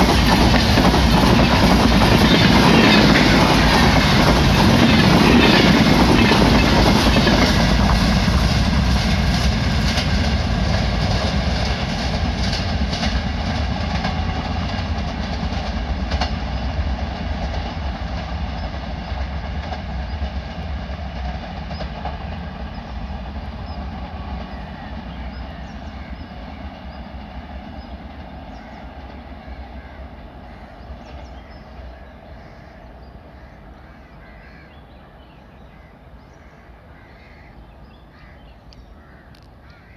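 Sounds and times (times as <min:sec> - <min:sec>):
train wheels clickety-clack: 0:00.0 - 0:34.6.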